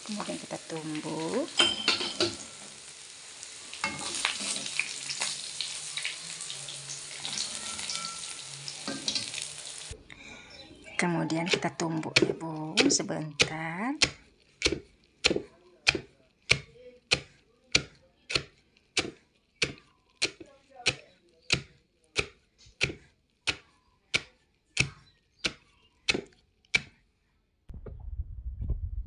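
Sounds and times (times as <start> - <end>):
pestle pounding in mortar: 11.4 - 27.0.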